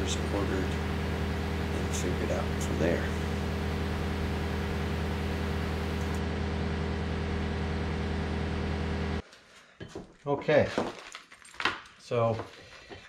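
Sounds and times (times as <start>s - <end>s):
engine idling hum: 0.0s - 9.2s.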